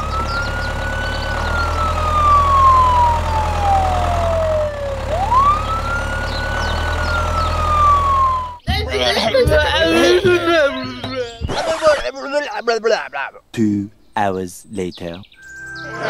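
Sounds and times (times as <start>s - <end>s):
ambulance siren wailing: 0.0s - 8.6s.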